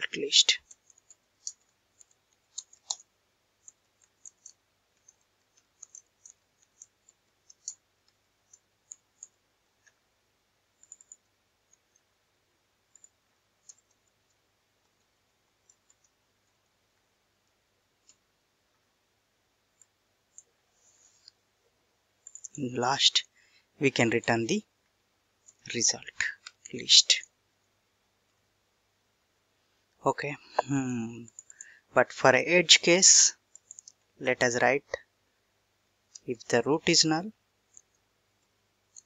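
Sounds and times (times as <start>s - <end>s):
keyboard typing clicks: 0.6s - 10.0s, 10.8s - 12.1s, 22.2s - 22.6s.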